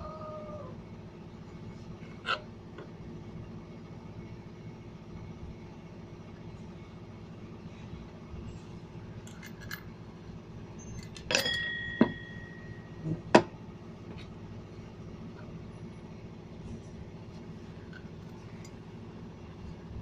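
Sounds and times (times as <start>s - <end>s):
steady low hum: 0.0s - 20.0s
metal clutch parts clinking: 9.2s - 9.9s, 10.8s - 13.0s.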